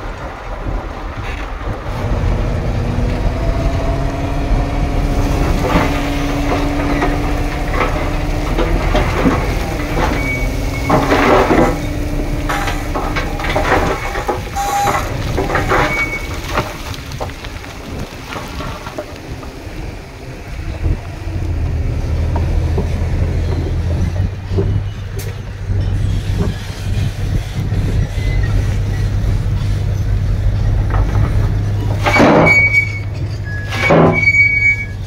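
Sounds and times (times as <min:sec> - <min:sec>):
diesel engine droning: 0:00.0 - 0:35.0
metallic clanks: 0:05.3 - 0:16.8
machinery squeals: 0:08.8 - 0:16.4, 0:23.3 - 0:30.2, 0:31.9 - 0:35.0.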